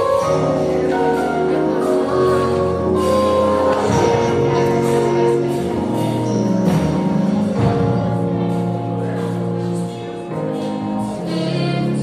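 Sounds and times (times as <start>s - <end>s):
choir singing: 0.0s - 7.6s
sustained chords: 0.0s - 12.0s
woman singing into microphone: 11.0s - 12.0s.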